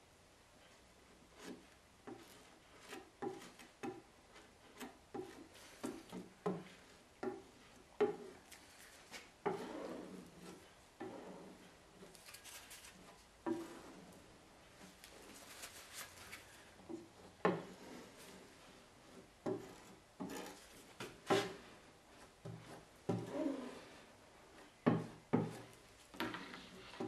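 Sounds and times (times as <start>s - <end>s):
putty knife scraping: 1.4s - 14.2s, 14.8s - 21.7s.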